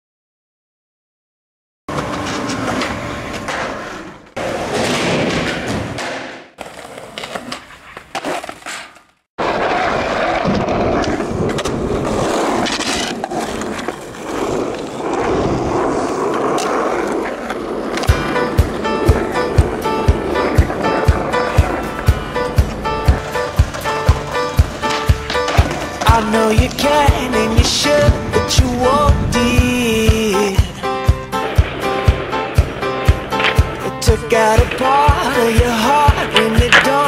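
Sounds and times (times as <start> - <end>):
skateboard clacks: 1.9 - 28.8, 30.1 - 37.0
skateboard wheels rolling on asphalt: 1.9 - 37.0.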